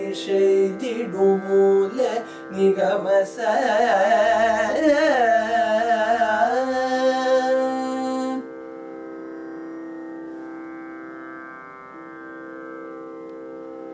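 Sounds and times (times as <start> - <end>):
men singing: 0.0 - 8.2.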